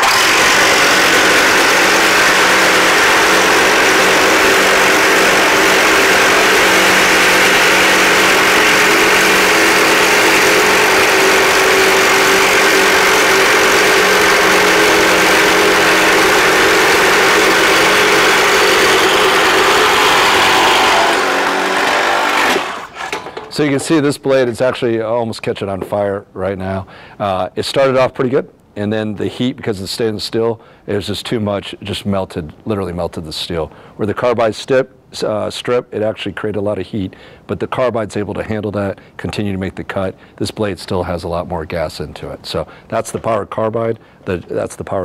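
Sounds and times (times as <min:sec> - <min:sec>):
reciprocating saws cutting metal: 0:00.0 - 0:23.4.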